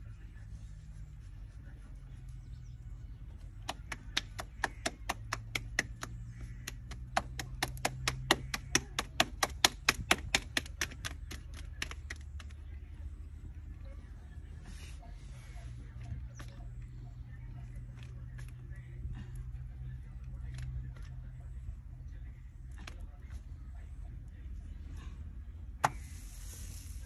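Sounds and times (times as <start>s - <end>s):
steady low hum: 0.0s - 27.0s
fast sharp taps: 3.6s - 12.6s.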